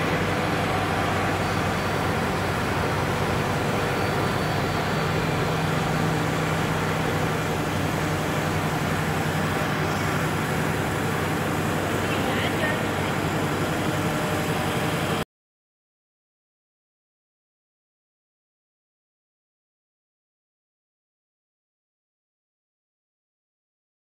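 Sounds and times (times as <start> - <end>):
machine running with low hum: 0.0 - 15.2.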